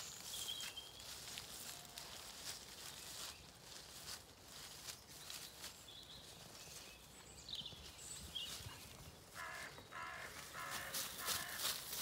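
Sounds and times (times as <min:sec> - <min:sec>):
faint songbird chirps: 0:00.0 - 0:10.5
crow cawing: 0:09.3 - 0:12.0.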